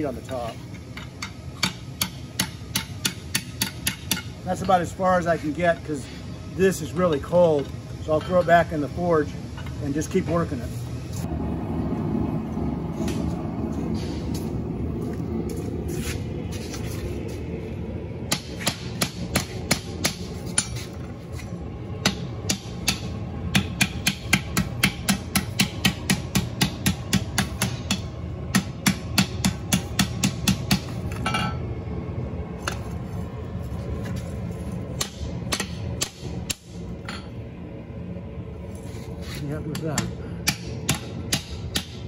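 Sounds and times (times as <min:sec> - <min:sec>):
steady low rumble: 0:00.0 - 0:42.0
hammer striking metal on anvil: 0:01.0 - 0:04.8, 0:18.3 - 0:20.8, 0:22.0 - 0:31.6, 0:35.0 - 0:37.3, 0:39.7 - 0:42.0.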